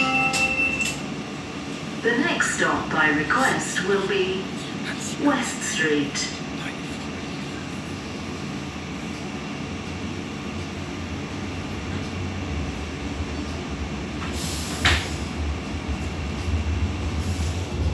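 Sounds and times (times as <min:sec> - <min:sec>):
tram wheels rumbling: 0:07.6 - 0:17.9.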